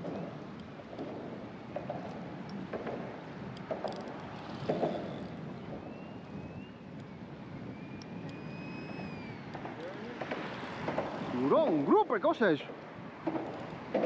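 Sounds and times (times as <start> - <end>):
sea water at shoreline: 0.0 - 14.0
wind: 0.0 - 14.0
faint thin whistling tones: 4.8 - 9.9.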